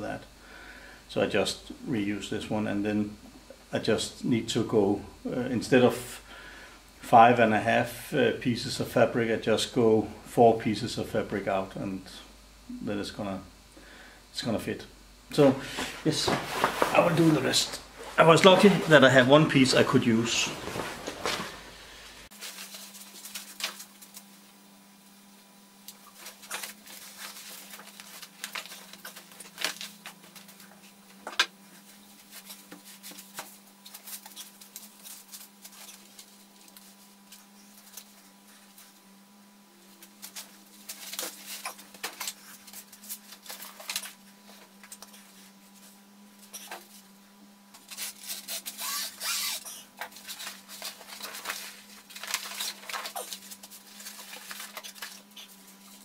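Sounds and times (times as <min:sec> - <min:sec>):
steady low hum: 0:00.0 - 0:56.0
sail fabric rustling and crinkling: 0:15.7 - 0:24.3, 0:50.1 - 0:56.0.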